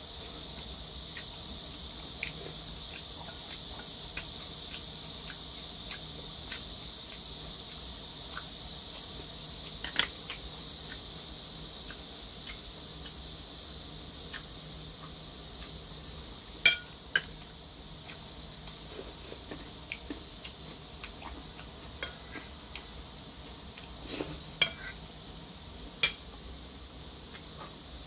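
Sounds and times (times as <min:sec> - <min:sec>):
spoon clinking on porcelain bowl: 0:16.7 - 0:17.3.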